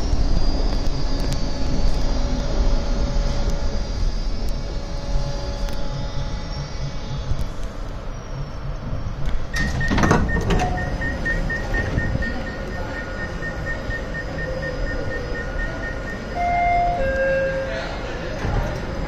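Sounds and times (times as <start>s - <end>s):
pulsing high whine: 0.0s - 19.0s
subway train rumbling: 0.0s - 19.0s.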